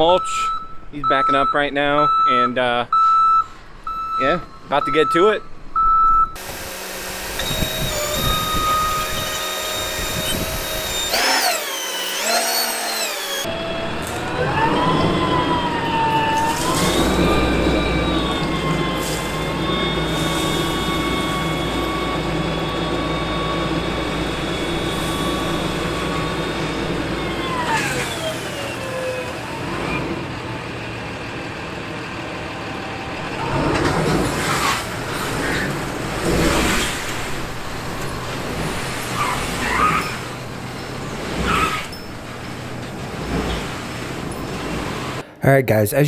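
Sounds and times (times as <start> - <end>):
hydraulic pump whining: 6.4 - 30.6, 32.5 - 45.3
truck engine idling: 13.5 - 34.3.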